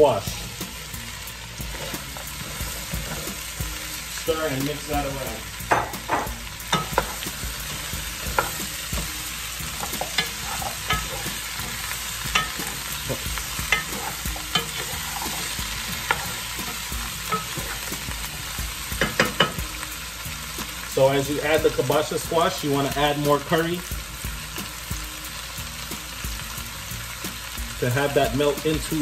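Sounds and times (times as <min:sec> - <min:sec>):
steady sizzle: 0:00.0 - 0:29.0
spoon clacking against pot: 0:05.6 - 0:07.3, 0:08.1 - 0:18.0, 0:19.0 - 0:19.6.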